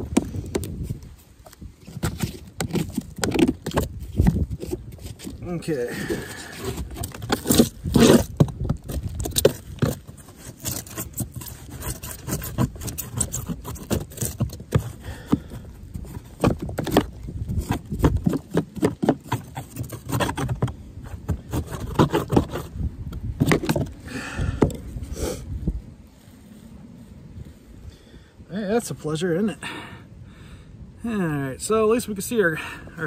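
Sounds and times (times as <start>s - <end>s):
hand scraper scraping styrofoam: 6.0s - 23.9s.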